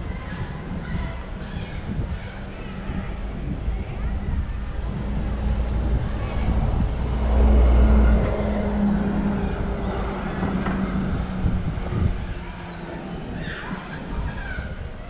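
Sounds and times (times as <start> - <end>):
vehicle engine passing: 3.9 - 13.2.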